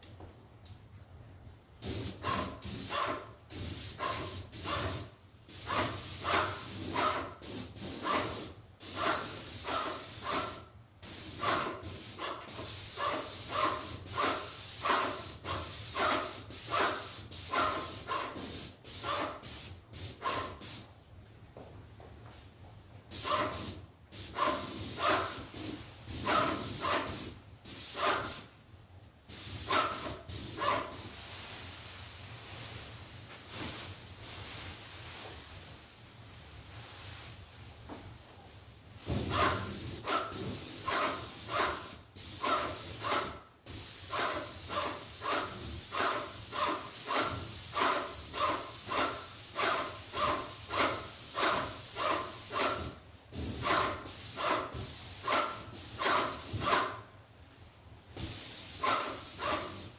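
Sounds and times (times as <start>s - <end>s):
paint spray gun hissing bursts: 1.8s - 20.8s, 23.1s - 28.5s, 29.3s - 31.1s, 39.2s - 56.8s, 58.2s - 59.9s.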